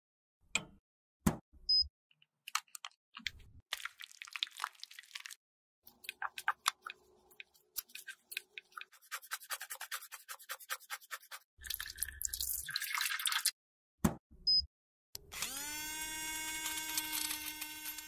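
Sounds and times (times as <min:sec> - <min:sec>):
brush scrubbing: 0:05.9 - 0:11.4.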